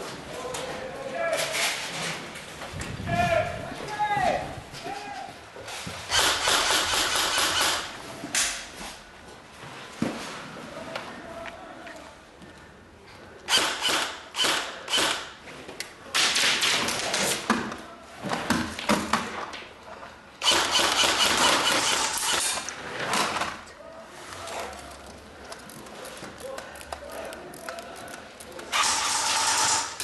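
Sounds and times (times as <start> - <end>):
airsoft guns firing: 6.1 - 8.0, 13.5 - 15.3, 20.4 - 23.6.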